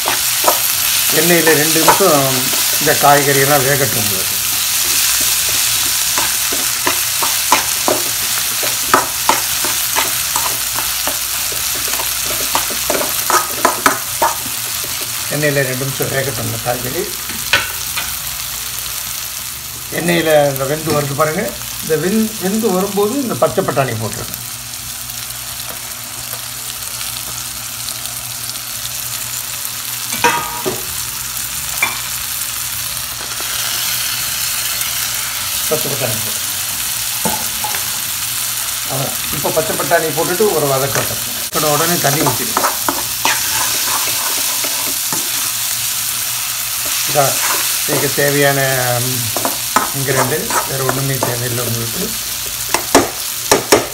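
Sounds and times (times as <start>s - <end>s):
vegetables sizzling in hot oil: 0.0s - 53.9s
spatula scraping a pan: 42.6s - 45.5s, 49.4s - 51.0s.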